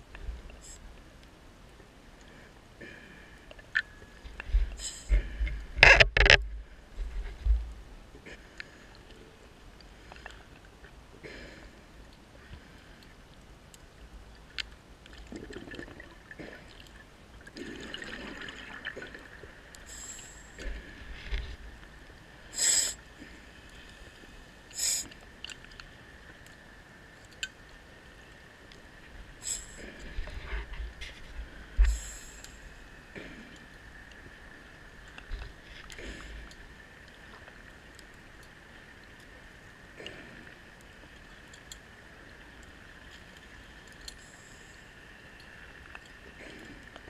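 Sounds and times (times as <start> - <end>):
faint steady hiss: 0.0 - 47.0
underwater breathing gear hisses: 22.5 - 23.0, 24.7 - 25.2, 29.4 - 29.8.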